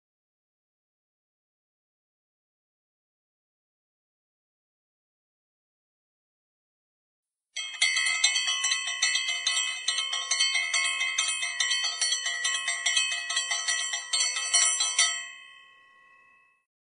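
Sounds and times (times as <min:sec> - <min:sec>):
bell chimes ringing: 0:07.6 - 0:16.6.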